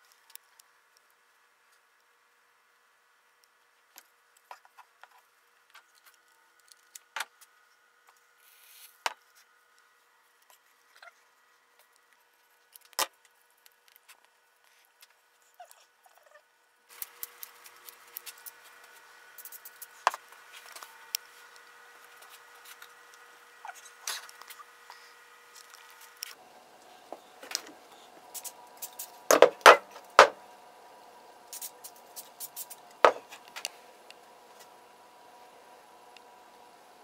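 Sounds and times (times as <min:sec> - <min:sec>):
faint steady hum: 0:00.0 - 0:37.0
wooden puppet arm clicks and knocks: 0:29.3 - 0:30.4.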